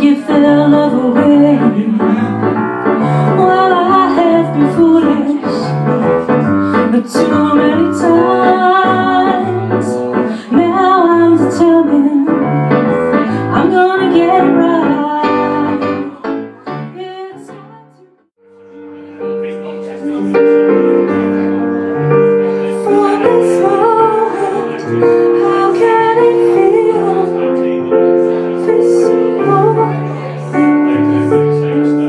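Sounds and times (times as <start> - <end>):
woman singing: 0.0 - 2.5, 3.1 - 5.9, 6.7 - 18.3, 22.6 - 27.8, 28.6 - 30.4
piano accompaniment: 0.0 - 32.0.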